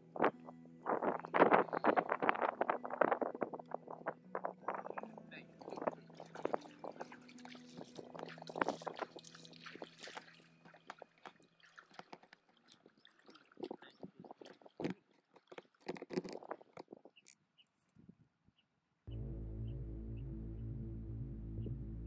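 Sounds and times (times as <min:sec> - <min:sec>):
water sloshing and splashing: 0:00.1 - 0:17.2.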